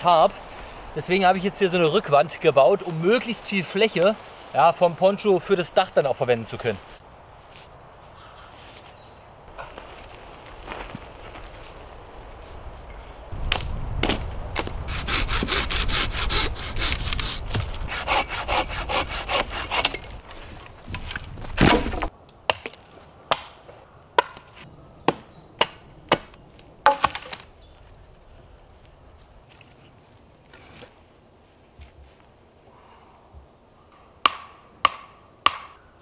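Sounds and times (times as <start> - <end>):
hand saw cutting branch: 14.6 - 20.2.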